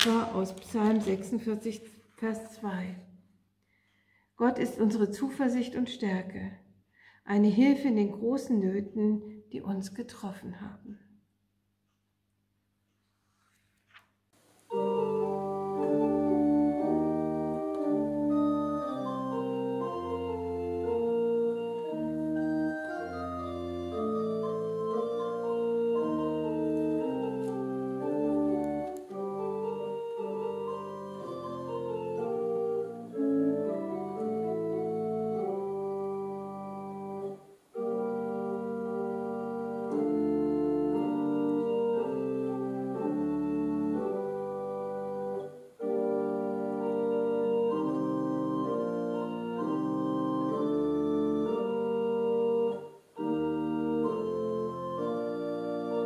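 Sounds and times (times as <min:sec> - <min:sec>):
pipe organ playing chords: 0:14.6 - 0:56.0.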